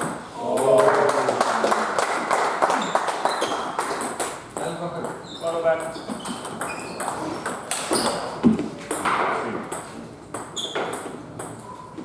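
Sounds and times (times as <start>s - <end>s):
table tennis balls clicking: 6.1s - 8.3s, 8.9s - 11.7s.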